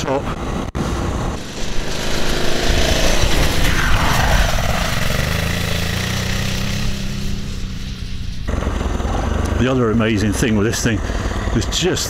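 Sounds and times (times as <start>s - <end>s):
rush of noise: 0.0s - 12.0s
motorcycle engine under load: 4.6s - 12.0s.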